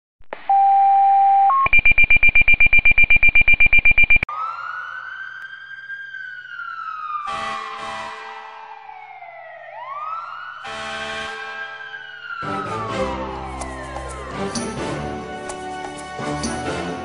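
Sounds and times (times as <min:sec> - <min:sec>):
alert tones: 0:00.5 - 0:04.2
rapid beeping: 0:01.6 - 0:04.3
siren wailing: 0:04.0 - 0:14.7.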